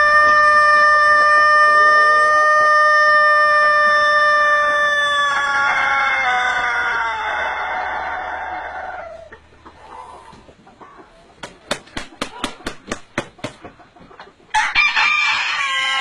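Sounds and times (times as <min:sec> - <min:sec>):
rooster crowing: 0:00.0 - 0:09.3, 0:14.5 - 0:16.0.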